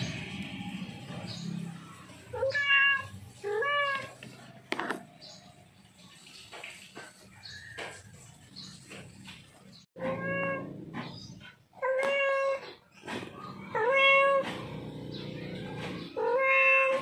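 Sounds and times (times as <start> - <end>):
cat meowing: 2.3 - 4.2, 10.0 - 10.8, 13.6 - 14.4, 16.1 - 17.0.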